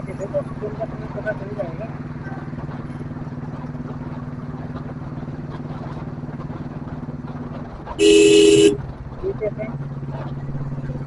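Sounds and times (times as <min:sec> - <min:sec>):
motorcycle engine running: 0:00.0 - 0:11.0
horn blast: 0:08.0 - 0:08.8.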